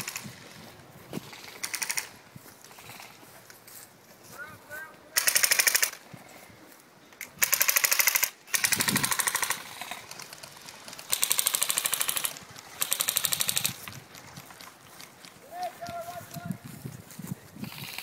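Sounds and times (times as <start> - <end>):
airsoft rifle full-auto bursts: 1.2 - 3.1, 5.2 - 6.0, 7.4 - 13.9, 17.6 - 18.0.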